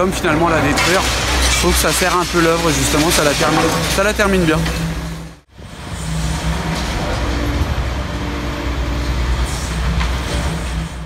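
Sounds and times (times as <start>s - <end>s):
diesel engine running: 4.1s - 11.0s.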